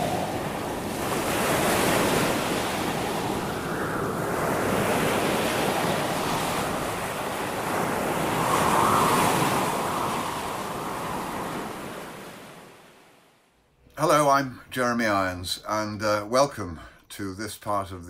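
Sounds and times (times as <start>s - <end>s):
sea waves washing on beach: 0.0s - 13.4s.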